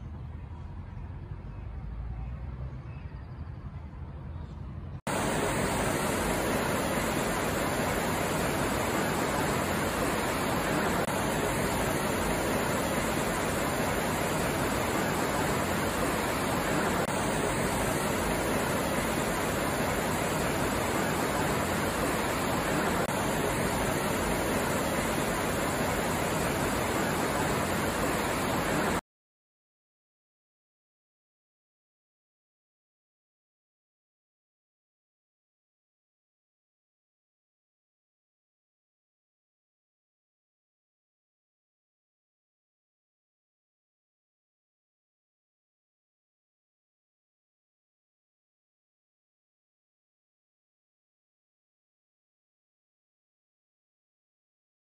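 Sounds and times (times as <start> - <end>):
water rushing: 5.1 - 29.0.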